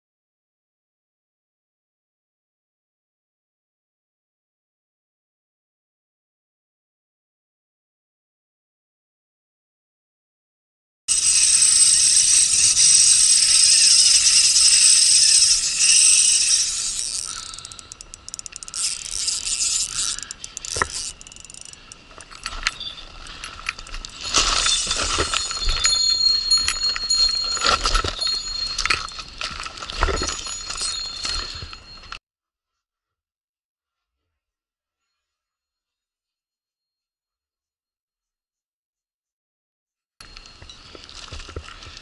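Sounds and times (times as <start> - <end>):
fishing reel drag buzzing and clicking: 11.1 - 27.2.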